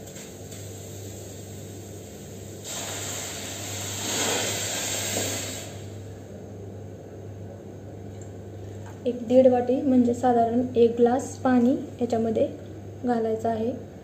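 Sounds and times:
water pouring into a pan: 2.6s - 5.8s.

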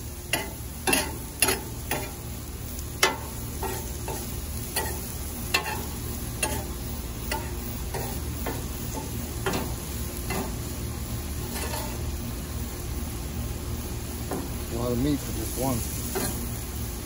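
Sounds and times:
meat and vegetables sizzling: 0.0s - 17.0s
metal spatula scraping griddle: 0.3s - 2.2s, 3.0s - 10.6s, 11.4s - 12.1s.

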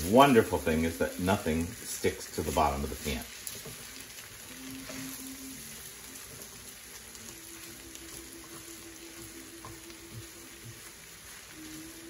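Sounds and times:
rice sizzling in frying pan: 0.0s - 12.0s.

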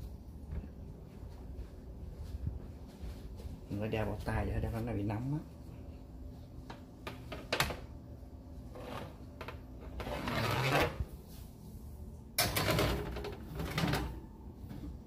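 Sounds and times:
baking sheet scraping on oven rack: 9.8s - 11.1s.

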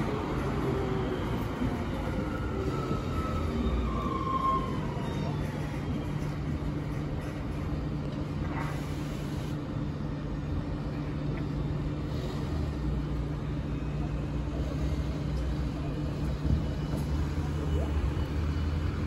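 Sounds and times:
slow street traffic drone: 0.0s - 19.0s
constant low hum: 5.2s - 19.0s.

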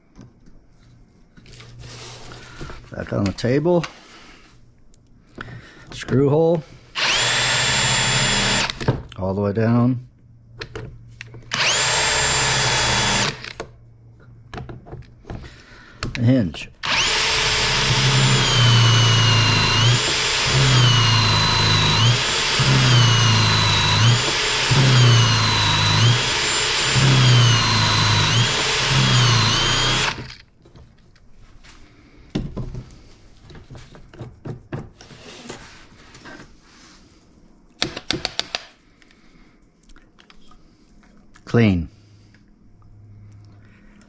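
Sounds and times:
cordless drill boring wood: 7.0s - 8.9s, 11.5s - 13.7s, 16.8s - 30.4s.

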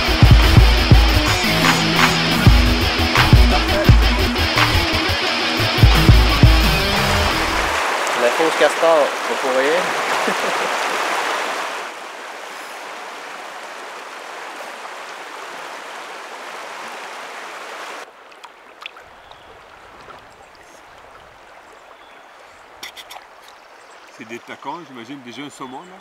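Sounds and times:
river water rushing over gravel: 6.7s - 21.9s.

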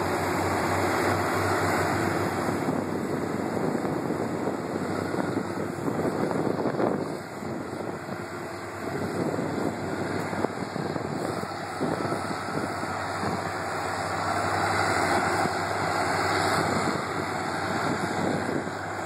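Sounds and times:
low engine hum: 0.0s - 19.0s
tyres on gravel road: 0.0s - 19.0s.

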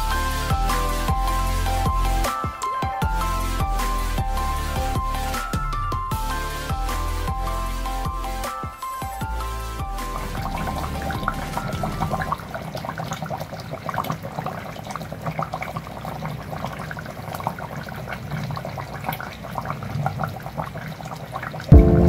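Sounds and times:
coconut milk bubbling in a pot: 10.3s - 21.7s.

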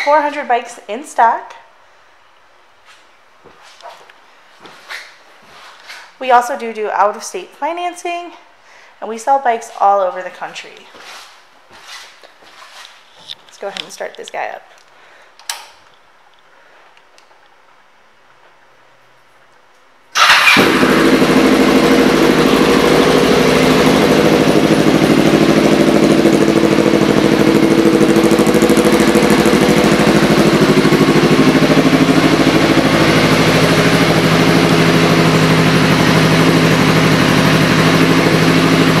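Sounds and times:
motorcycle engine starting and idling: 20.1s - 39.0s.

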